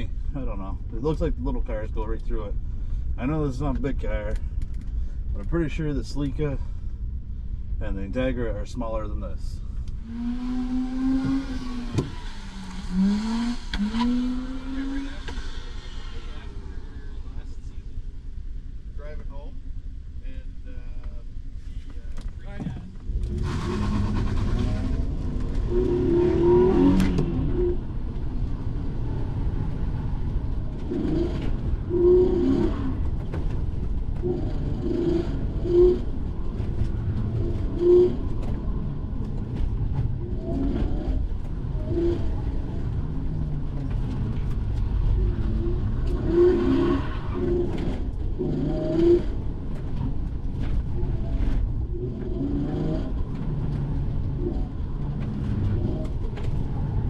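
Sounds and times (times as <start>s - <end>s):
car engine from inside cabin: 9.0s - 18.3s, 21.6s - 57.0s.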